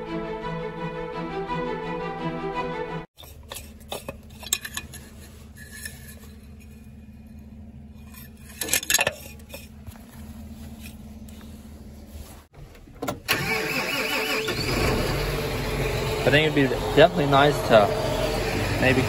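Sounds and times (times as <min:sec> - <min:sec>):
dipstick scraping in metal tube: 0:03.2 - 0:11.4.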